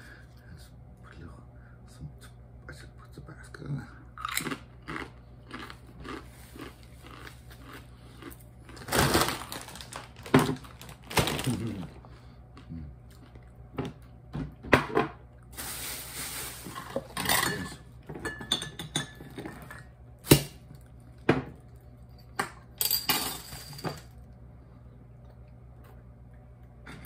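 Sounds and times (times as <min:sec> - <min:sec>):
glass and tableware clinking: 0:17.2 - 0:19.8.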